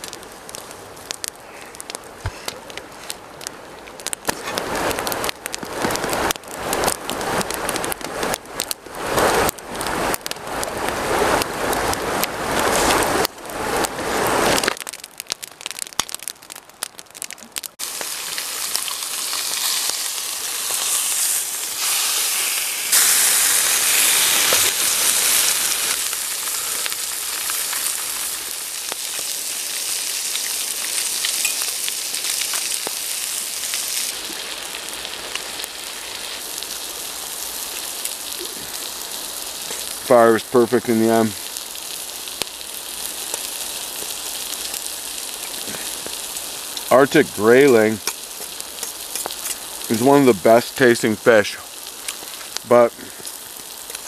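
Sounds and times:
fish sizzling in a pan: 17.6 - 54.0
frying pan rustling and scraping: 20.6 - 28.2.

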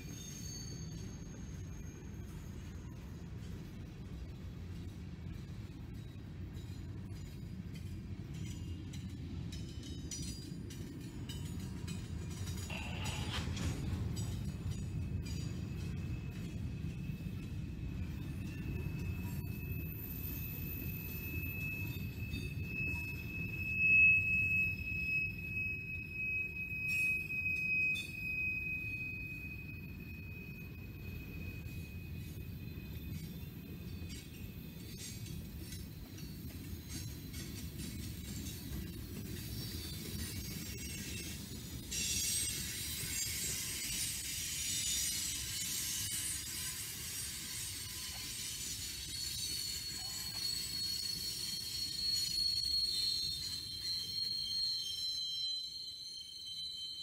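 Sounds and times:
wheels rumbling on rails: 0.0 - 56.1
thin high-pitched whine: 0.0 - 57.0
train cars clanking: 0.0 - 57.0
train wheels squealing: 0.0 - 57.0.

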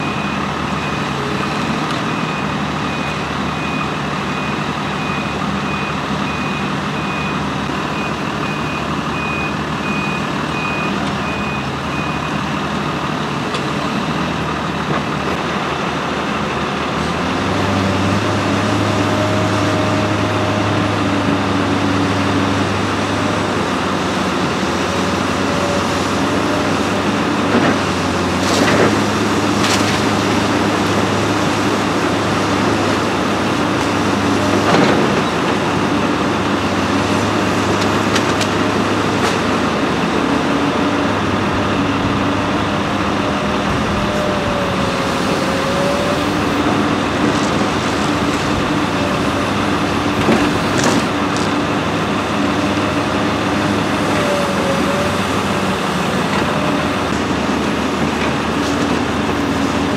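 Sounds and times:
reversing alarm beeping: 0.0 - 12.5
heavy diesel engines running: 0.0 - 59.9.

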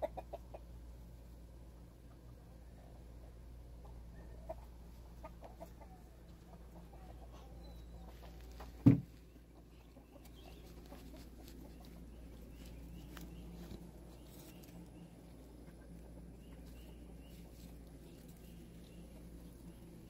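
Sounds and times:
hens clucking: 0.0 - 20.0
loud thump: 8.8 - 9.1.

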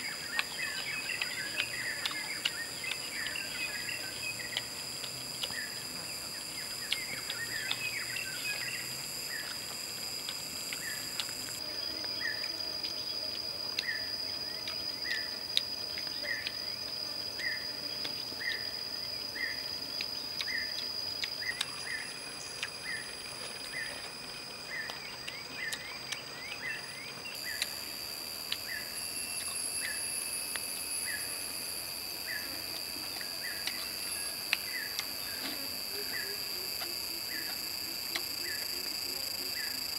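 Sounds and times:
insects droning: 0.0 - 39.9
faint sharp clicks: 36.8 - 39.8.

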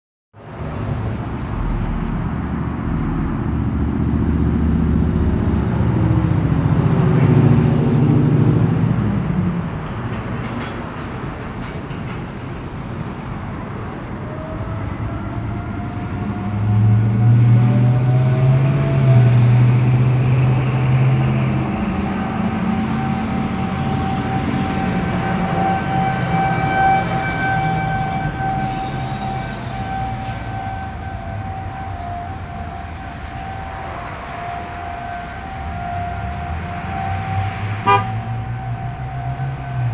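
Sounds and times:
vehicle passing: 0.6 - 10.1, 29.6 - 39.9
warning siren wailing: 14.2 - 39.9.

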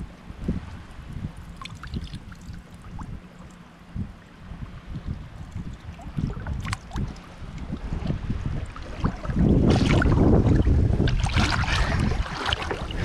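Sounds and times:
wind rumbling on microphone: 0.0 - 13.0
water sloshing and splashing: 1.2 - 13.0
sharp splash: 8.8 - 13.0.

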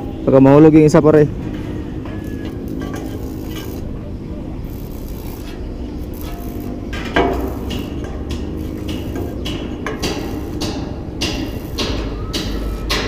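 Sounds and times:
hammer blows on wood framing: 7.0 - 13.0.

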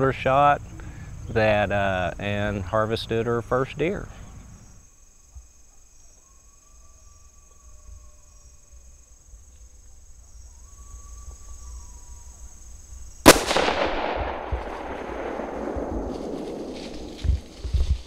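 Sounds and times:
rifle shot with echo: 13.2 - 18.0.

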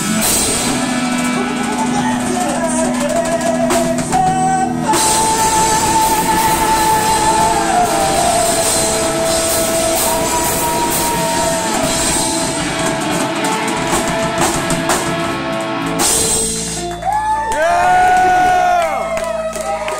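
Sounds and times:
bending electric guitar notes: 0.0 - 19.9
live rock band playing: 0.0 - 19.9
cymbal crashes: 5.0 - 16.9.

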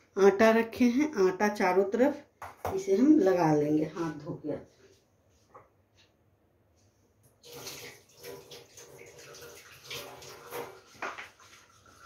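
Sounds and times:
hands being washed: 7.3 - 12.0
water running from a tap: 7.4 - 12.0.

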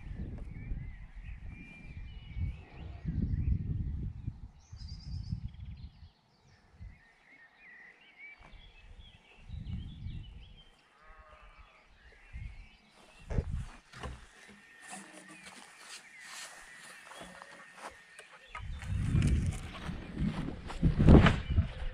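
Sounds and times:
wind buffeting microphone: 0.0 - 7.0, 8.6 - 10.7, 12.0 - 14.2, 18.5 - 21.9
birds chirping: 0.0 - 21.9.

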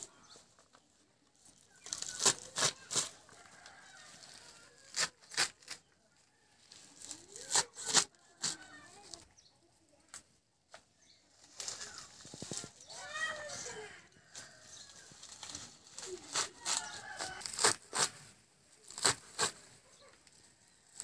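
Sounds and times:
knife snapping through stems: 1.9 - 3.2, 18.8 - 19.6.

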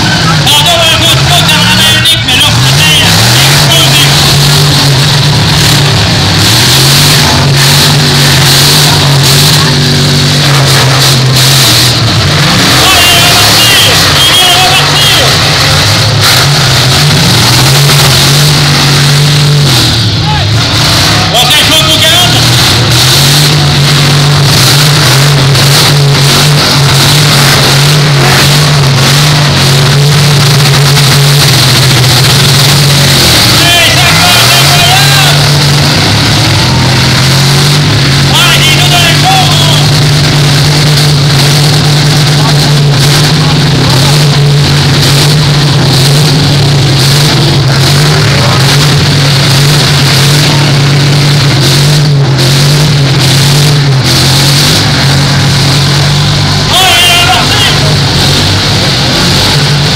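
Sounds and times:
car engines running hard: 0.0 - 59.9.

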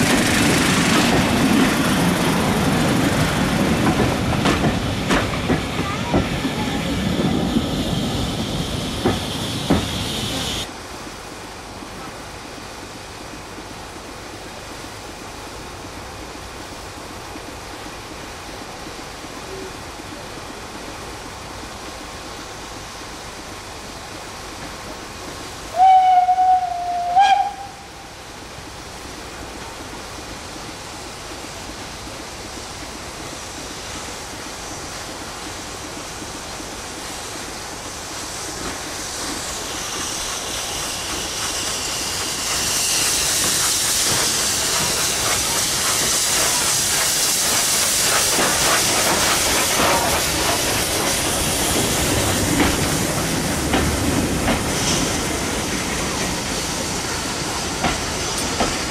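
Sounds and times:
steam hissing: 0.0 - 10.8, 11.5 - 58.9
steam train running in: 0.0 - 58.9
steam locomotive whistle: 25.7 - 28.1.

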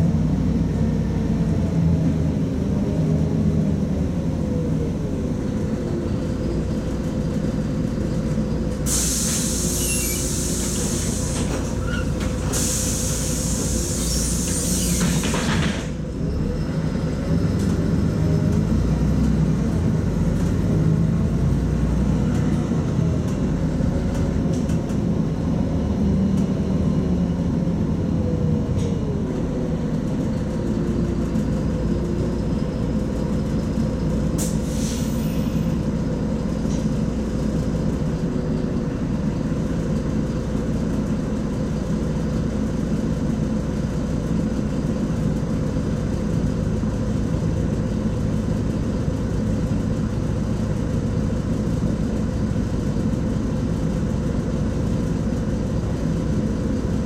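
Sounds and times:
bus engine running: 0.0 - 57.0
air hiss: 8.9 - 11.7, 12.5 - 15.4, 34.4 - 35.2.

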